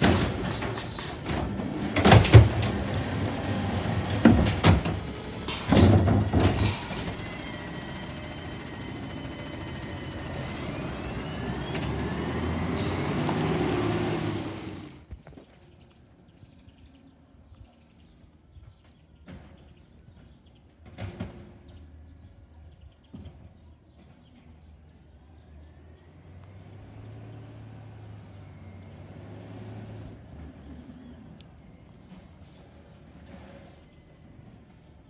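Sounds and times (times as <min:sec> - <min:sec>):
garbage truck engine hum: 0:00.0 - 0:15.2, 0:25.6 - 0:34.7.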